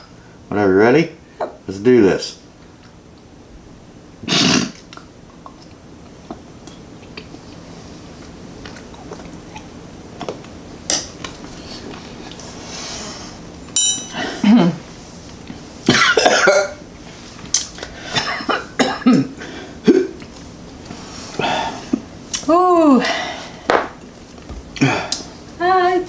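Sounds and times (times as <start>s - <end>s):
people coughing: 15.9s - 16.8s, 18.1s - 20.2s.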